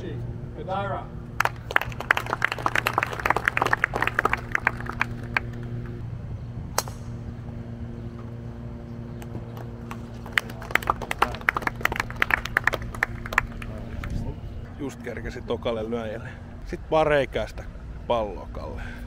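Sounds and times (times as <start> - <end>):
low hum: 0.0 - 19.0
crowd clapping: 1.4 - 6.0, 9.2 - 14.2
golf club striking ball: 6.7 - 7.2.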